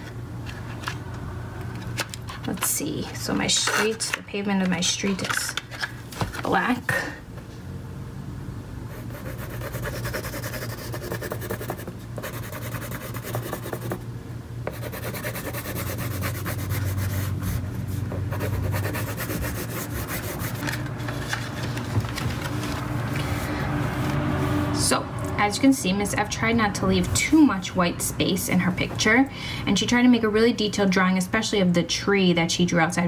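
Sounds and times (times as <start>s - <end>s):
crayon rubbing on paper: 9.0s - 14.0s, 14.7s - 20.6s.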